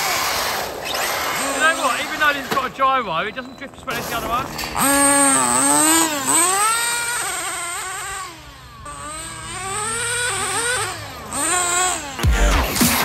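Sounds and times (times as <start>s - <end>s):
rc truck motor whining: 0.0s - 13.0s
music with heavy beat: 12.2s - 13.0s.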